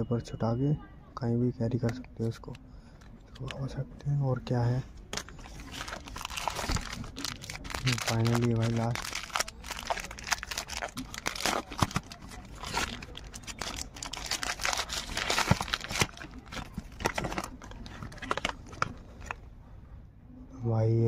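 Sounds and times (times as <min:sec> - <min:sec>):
plastic packaging crinkling: 0:05.1 - 0:19.4.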